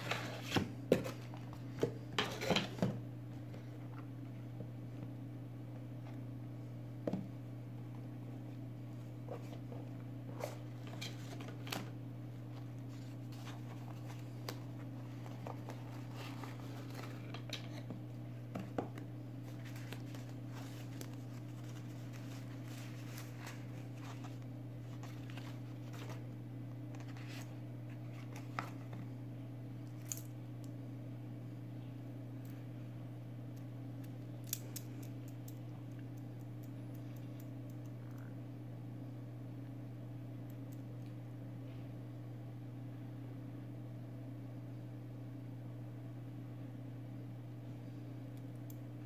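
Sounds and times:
steady low hum: 0.0 - 49.0
tissue paper rustling: 19.4 - 26.2.

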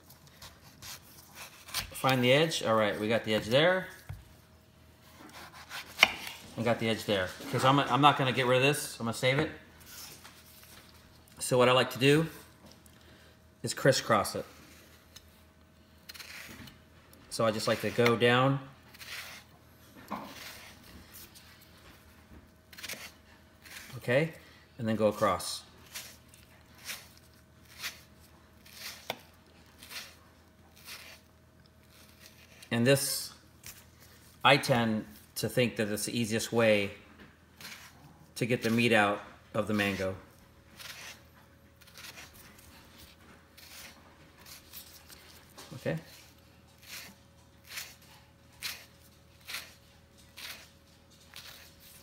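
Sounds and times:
knife cutting on wooden board: 5.2 - 6.4, 16.1 - 16.7, 18.9 - 19.5, 20.1 - 20.8, 29.8 - 31.3, 37.6 - 38.0, 40.8 - 45.2, 46.0 - 48.0.

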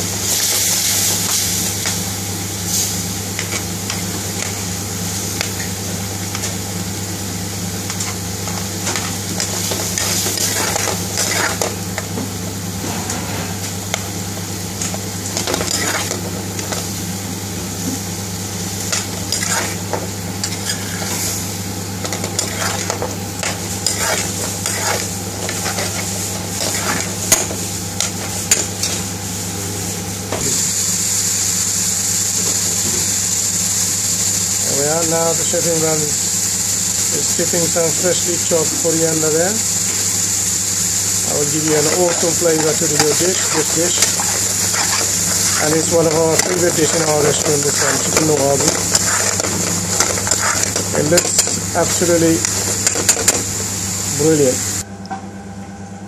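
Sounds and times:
sauce sizzling in frying pan: 0.0 - 12.8, 13.5 - 54.8
metal spoon scraping a pan: 8.8 - 11.8, 14.8 - 16.8, 18.9 - 19.8, 20.4 - 21.2, 22.0 - 29.0, 41.6 - 53.4.

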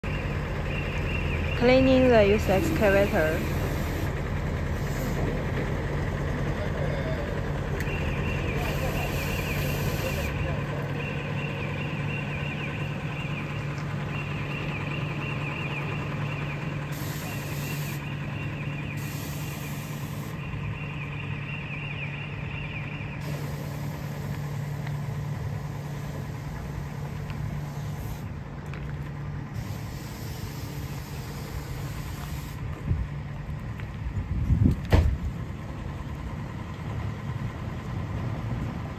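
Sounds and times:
machine motor humming: 23.2 - 28.3, 29.5 - 32.6.

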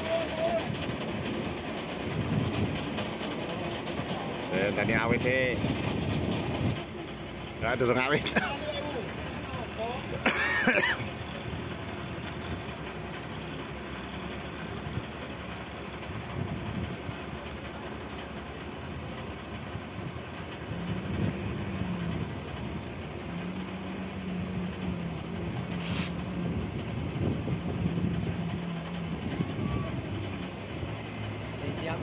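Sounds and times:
boat engine running: 0.0 - 32.0
choppy sea: 0.0 - 32.0
wind: 0.0 - 32.0
brief hiss: 25.8 - 26.2.

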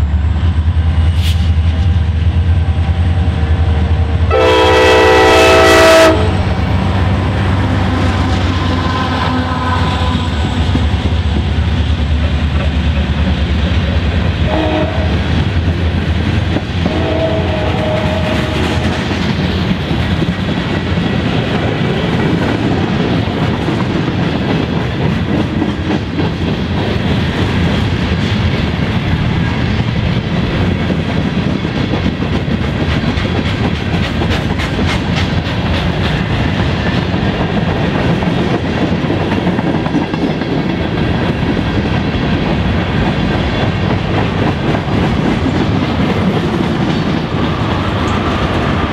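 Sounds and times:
diesel locomotives rumbling: 0.0 - 48.9
train horn chord: 4.3 - 10.8, 14.4 - 15.2, 16.8 - 18.9
wheels clattering on rails: 10.2 - 14.5, 15.1 - 48.9.

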